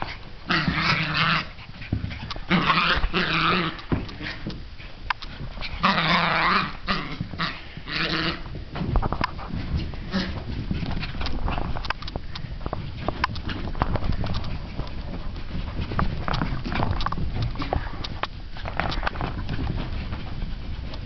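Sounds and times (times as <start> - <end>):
small dogs growling: 0.0 - 4.5, 5.6 - 8.5, 9.8 - 12.5.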